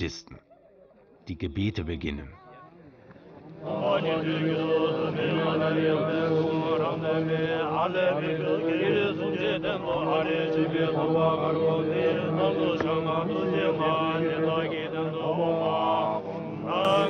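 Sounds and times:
men chanting prayers: 3.6 - 17.0.

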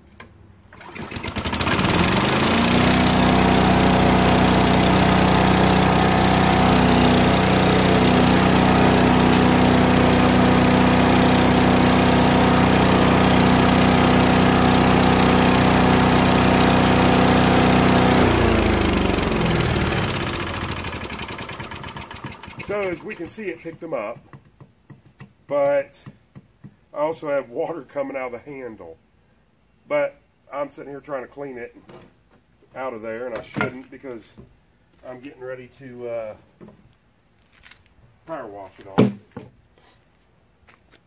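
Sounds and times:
small engine running: 0.8 - 23.4.

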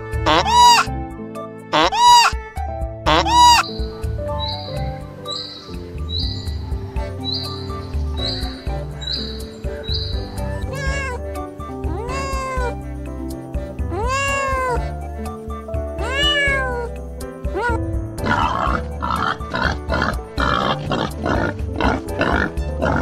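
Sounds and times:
background music: 0.0 - 23.0
cat meowing: 0.3 - 0.9, 1.8 - 2.4, 3.1 - 3.7, 10.4 - 11.2, 11.9 - 12.8, 13.9 - 14.9, 16.0 - 18.7
young boar grunting: 17.5 - 23.0.

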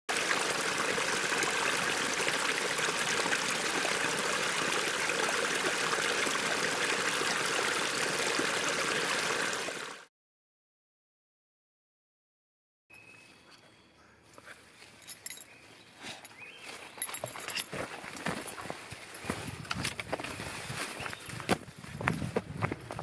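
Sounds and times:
creek water flowing: 0.1 - 10.1.

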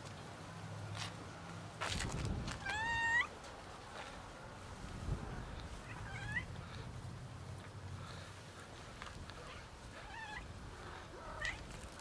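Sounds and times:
rustle: 0.0 - 12.0
cat meowing: 2.6 - 3.3, 5.9 - 6.5.

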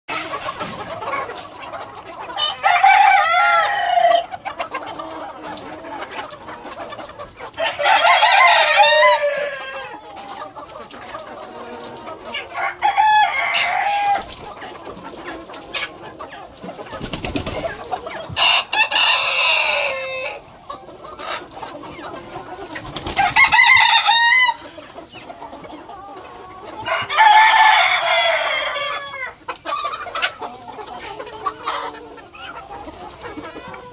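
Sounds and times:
chickens clucking: 0.1 - 33.9
roosters crowing: 2.2 - 4.4, 7.5 - 10.1, 12.3 - 14.4, 17.2 - 20.5, 22.9 - 24.8, 26.6 - 29.9.

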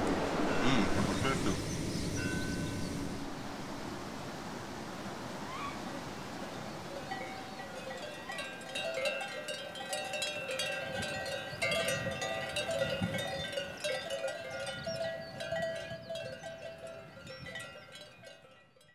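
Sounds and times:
livestock bells clanking: 7.0 - 18.9.

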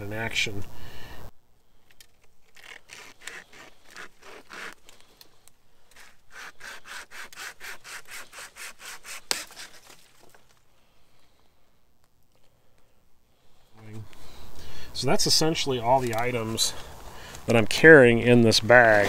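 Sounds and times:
wire saw rasping through branch: 2.4 - 5.2, 5.9 - 10.4
branch cracking: 9.1 - 10.7.

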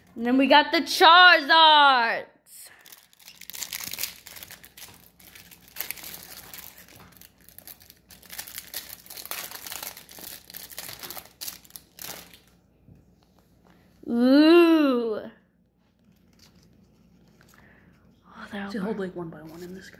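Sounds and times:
plastic wrapper crinkling: 2.7 - 12.6, 15.9 - 17.7.

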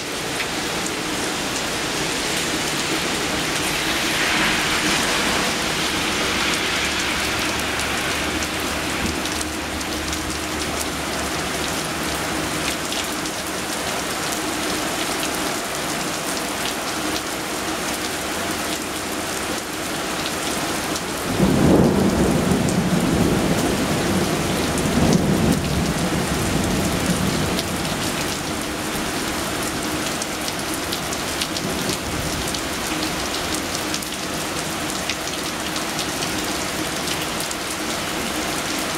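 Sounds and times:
heavy rain: 0.0 - 38.9
thunder rumbling: 0.6 - 12.5, 21.2 - 29.3.

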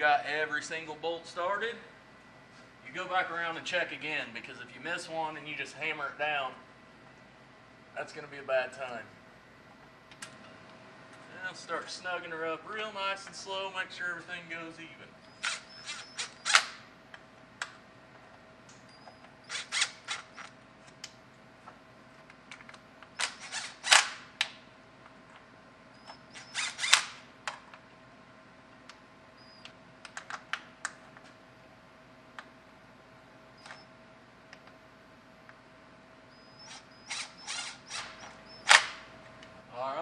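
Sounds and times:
faint steady hum: 0.0 - 40.0
power tool rapid clicking: 19.5 - 20.4, 26.4 - 27.2, 36.7 - 39.0.

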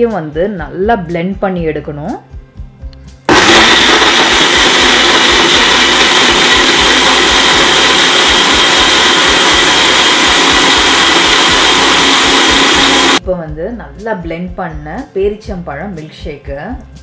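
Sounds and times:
blender motor whirring: 3.3 - 13.2.

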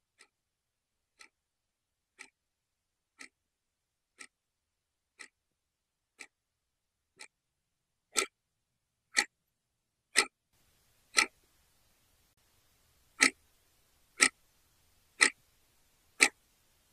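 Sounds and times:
clock ticking: 0.1 - 0.4, 1.1 - 1.4, 2.1 - 2.5, 3.1 - 3.4, 4.1 - 4.5, 5.1 - 5.4, 6.1 - 6.4, 7.1 - 7.4, 8.1 - 8.4, 9.1 - 9.4, 10.1 - 10.4, 11.1 - 11.4, 13.0 - 14.5, 15.1 - 15.5, 16.1 - 16.6.

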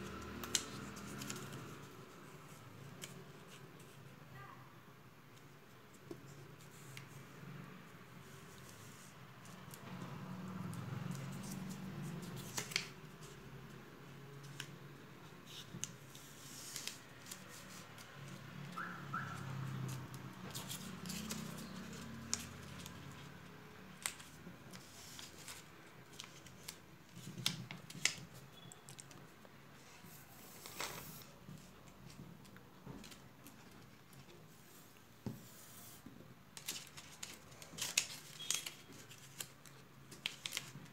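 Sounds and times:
paper rustling and crinkling: 0.2 - 4.1, 10.8 - 13.5, 15.4 - 18.6, 19.5 - 40.9.

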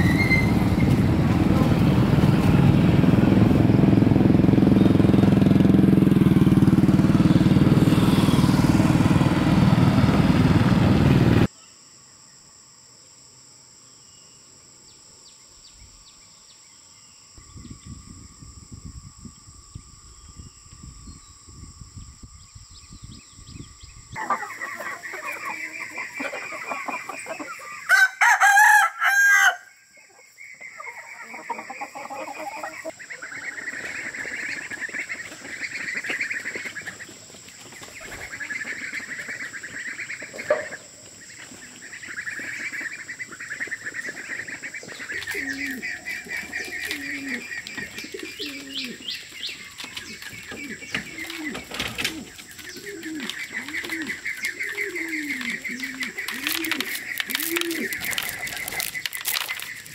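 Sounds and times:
engine running loudly: 0.0 - 11.5
chickens clucking: 24.2 - 27.9, 30.0 - 59.9
rooster crowing: 27.8 - 29.8.

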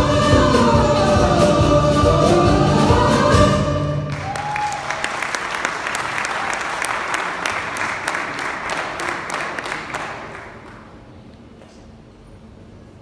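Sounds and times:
audience applause: 4.1 - 10.9.

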